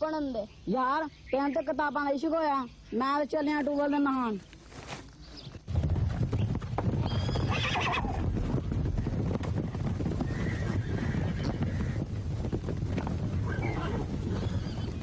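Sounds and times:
horses galloping: 5.4s - 15.0s
horse whinnying: 7.0s - 8.3s, 10.2s - 12.0s, 13.4s - 15.0s.

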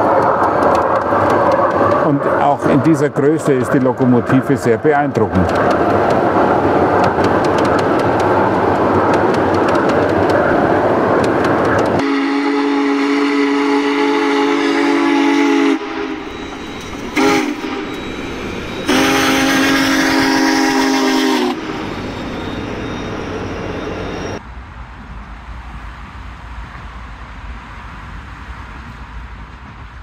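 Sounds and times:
train running past: 0.0s - 30.0s
steam locomotive chime whistle: 12.0s - 24.4s.

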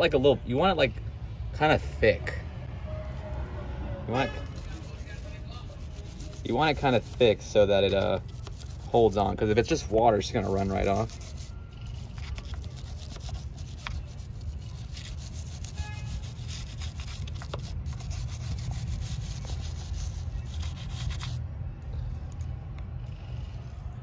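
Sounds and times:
stiff brush scrubbing metal: 4.2s - 21.4s.

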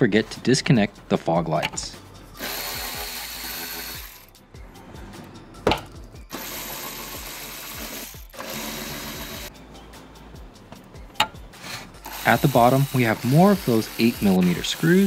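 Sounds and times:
background music with steady beat: 0.0s - 15.0s
power driver whirring: 2.4s - 4.3s, 6.3s - 9.5s, 12.0s - 15.0s.

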